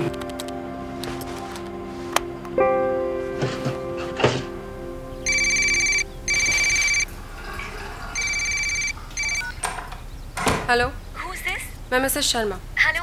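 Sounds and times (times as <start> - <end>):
phone ringtone: 5.2 - 7.1, 8.2 - 9.6.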